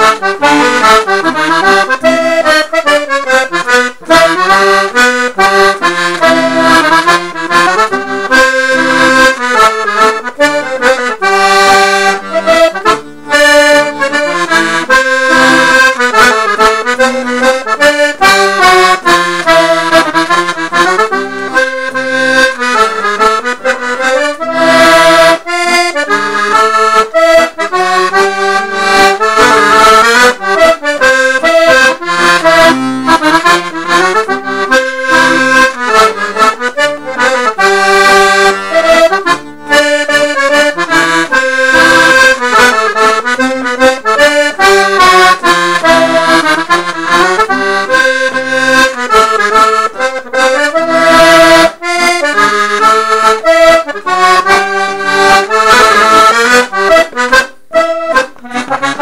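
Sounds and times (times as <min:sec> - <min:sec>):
button accordion playing dance tune: 0:00.0 - 0:59.0.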